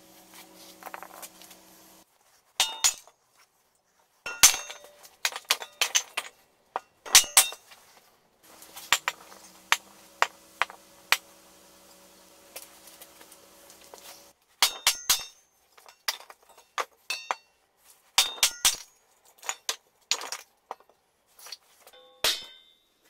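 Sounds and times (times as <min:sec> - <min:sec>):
short metallic ring: 0:22.0 - 0:22.9.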